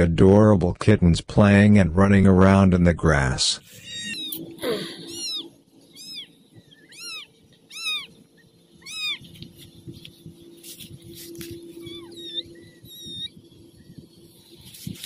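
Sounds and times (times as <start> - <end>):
kittens mewing: 3.7 - 9.8, 11.2 - 13.5.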